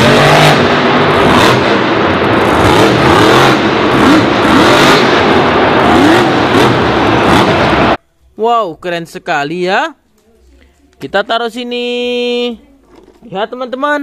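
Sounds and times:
loud wash of noise: 0.0s - 8.0s
monster truck engine revving: 0.0s - 8.0s.

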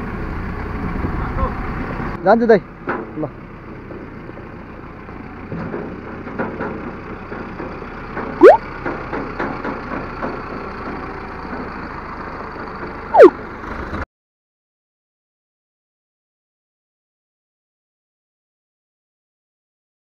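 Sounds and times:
motorcycle and tractor engines: 0.0s - 14.0s.

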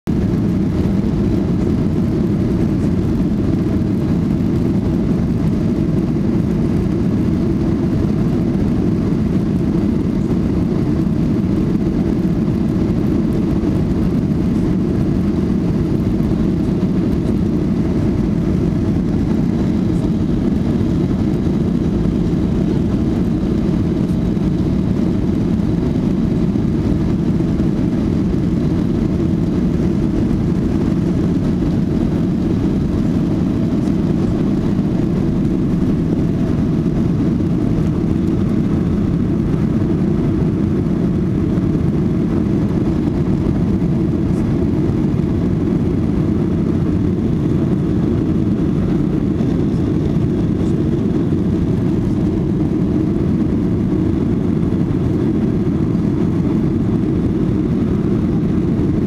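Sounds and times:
airplane cabin engine rumble: 0.0s - 59.0s.

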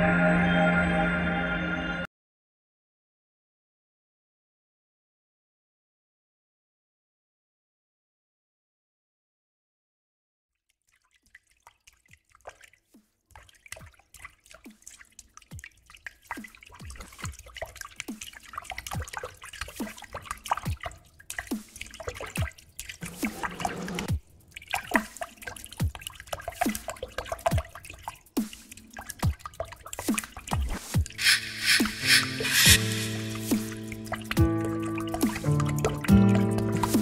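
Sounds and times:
water dripping into water: 10.6s - 23.3s, 24.0s - 30.8s, 33.4s - 37.0s.

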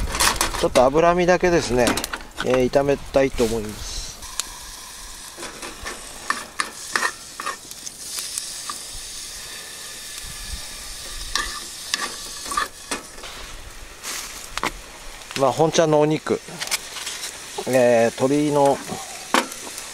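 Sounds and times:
fat sizzling in a pan: 0.0s - 19.9s
chopsticks scraping a pan: 4.2s - 8.8s, 11.0s - 13.3s, 16.6s - 17.7s.

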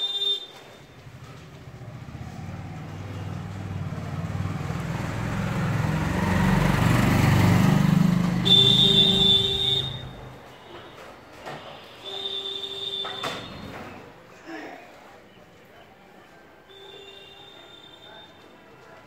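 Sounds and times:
vehicle engine passing by: 1.0s - 10.4s.

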